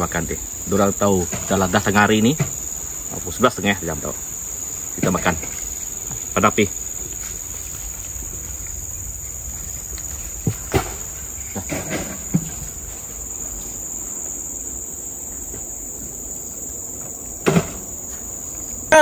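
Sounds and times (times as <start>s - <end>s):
insects chirring: 0.0s - 19.0s
faint knocks: 10.0s - 13.2s.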